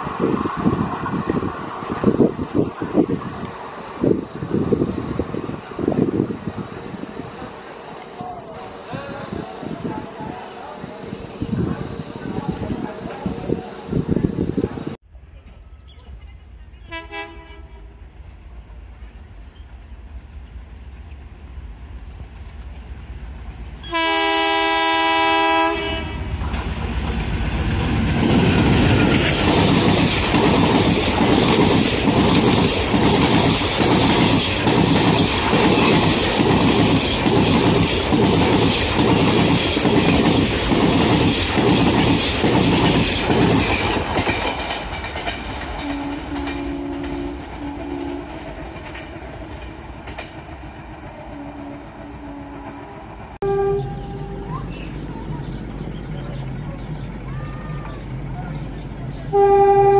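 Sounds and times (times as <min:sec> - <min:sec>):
locomotive horn: 0:16.9 - 0:17.8, 0:23.8 - 0:26.4, 0:45.8 - 0:48.4, 0:51.3 - 0:54.6, 0:59.3 - 0:59.9
train wheels clattering over rail joints: 0:26.4 - 0:51.4.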